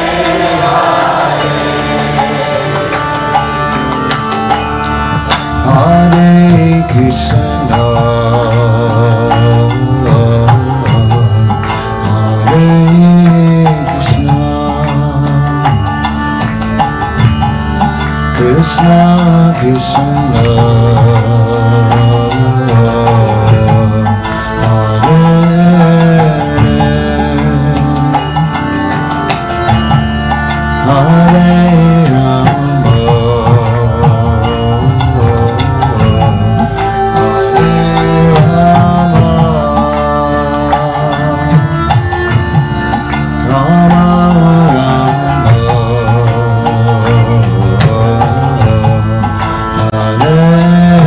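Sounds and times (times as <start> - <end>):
drum beating steady rhythm: 0.0 - 51.0
harmonium playing chords: 0.0 - 51.0.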